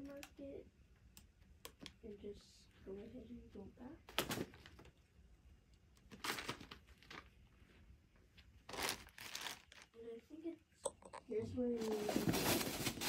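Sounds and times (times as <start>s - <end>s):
plastic and paper packaging rustling: 6.0s - 7.7s, 8.6s - 10.2s, 11.6s - 13.0s.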